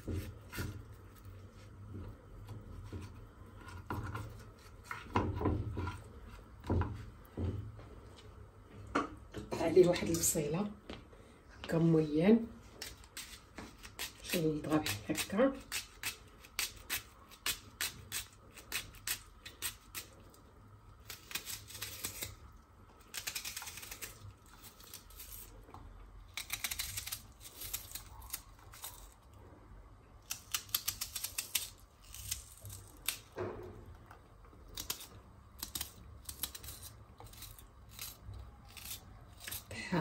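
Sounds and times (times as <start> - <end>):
knife slicing onion: 0.0 - 1.2, 12.8 - 20.2, 21.0 - 25.5, 34.8 - 40.0.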